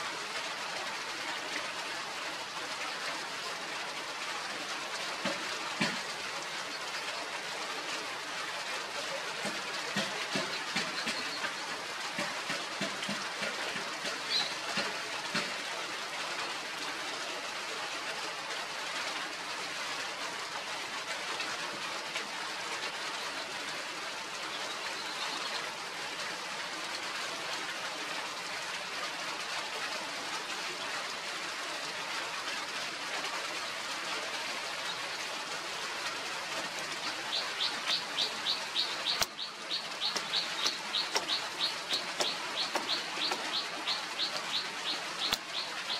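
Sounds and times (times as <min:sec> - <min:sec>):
steady background hiss: 0:22.4 - 0:45.9
small bird chirping fast: 0:37.1 - 0:45.9
sharp click: 0:39.1 - 0:39.4, 0:45.2 - 0:45.5.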